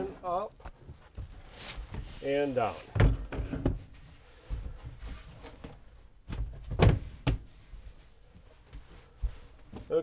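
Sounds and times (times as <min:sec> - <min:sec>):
wooden cabinet thumps and knocks: 0:02.9 - 0:03.9, 0:06.2 - 0:07.5.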